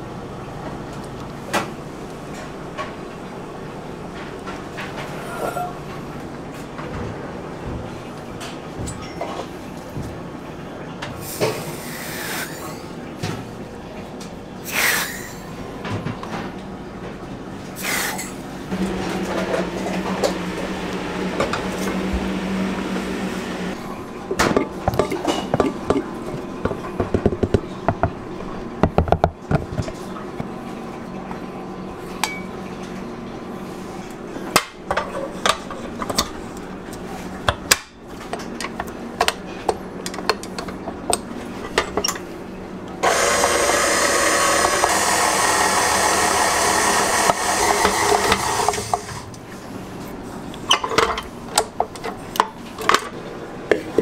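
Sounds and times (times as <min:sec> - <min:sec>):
utensils and bowl clinking: 0:24.2 - 0:27.8.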